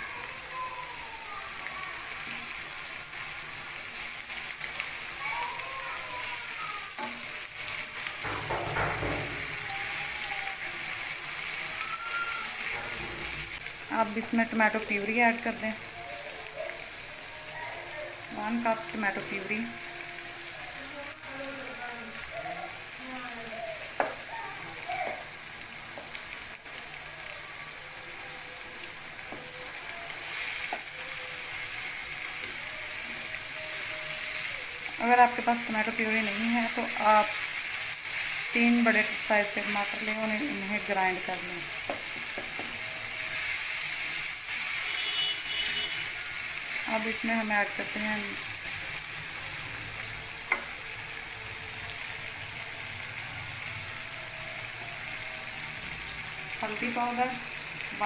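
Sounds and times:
onions sizzling in oil: 0.0 - 58.0
spatula stirring and scraping: 5.9 - 13.7.

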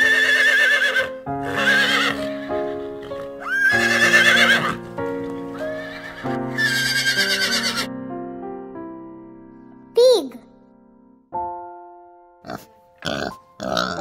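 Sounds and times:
horse whinnying: 0.0 - 4.8, 5.6 - 7.9
soft keyboard music: 0.0 - 14.0.

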